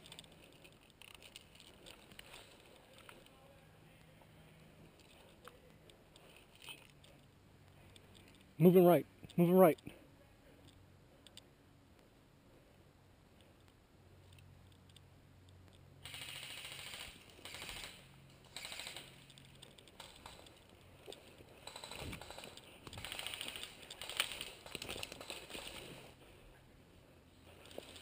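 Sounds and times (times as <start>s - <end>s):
airsoft guns firing full auto: 16.0s - 19.2s, 21.6s - 25.8s.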